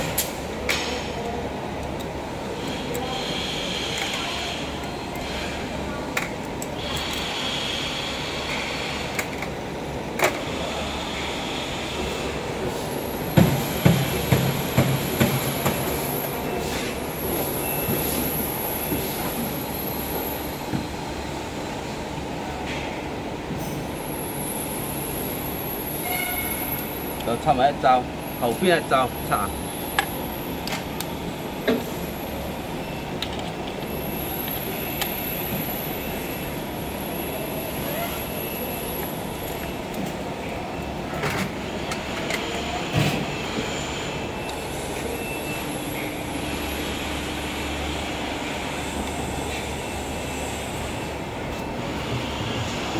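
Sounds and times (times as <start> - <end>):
machinery humming: 0.0 - 52.9
thin high whine: 23.6 - 30.6.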